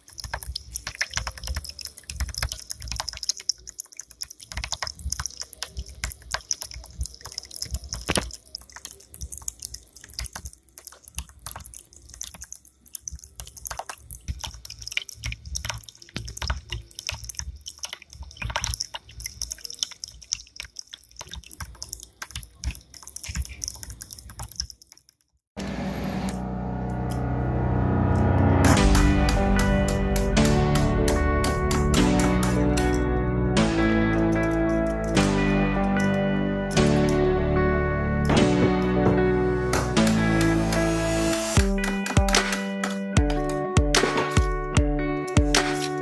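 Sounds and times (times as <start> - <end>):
fountain water trickling and splashing: 0.0 - 24.9.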